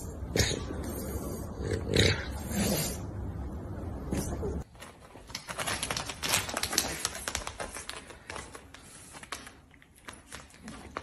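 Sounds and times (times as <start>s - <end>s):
dog paws scrabbling on tiles: 4.2s - 11.0s.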